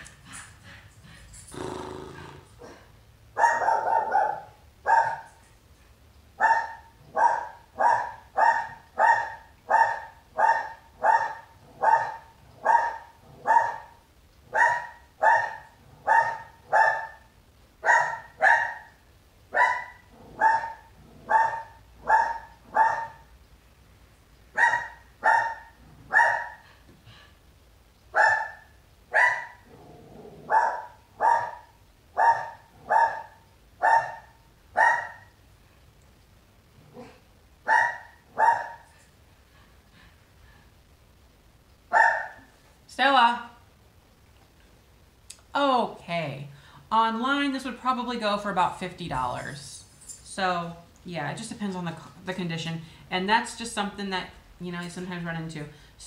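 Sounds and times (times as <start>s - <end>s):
dog barking: 3.4s - 5.4s, 6.4s - 23.3s, 24.6s - 26.6s, 28.2s - 29.6s, 30.5s - 35.3s, 37.0s - 38.9s, 41.9s - 42.5s.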